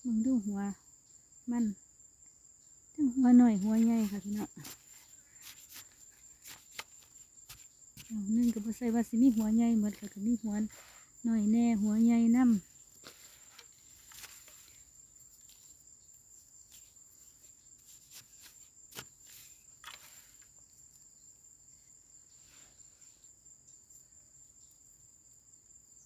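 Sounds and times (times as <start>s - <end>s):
cricket trilling: 0.0s - 26.0s
hands digging in soil: 3.6s - 11.0s, 12.4s - 15.8s, 16.7s - 20.4s.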